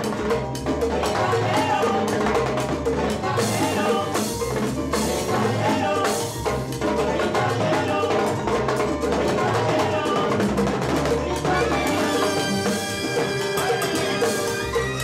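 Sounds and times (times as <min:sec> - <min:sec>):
congas played by hand: 0:00.0 - 0:15.0
pitched instruments: 0:00.5 - 0:15.0.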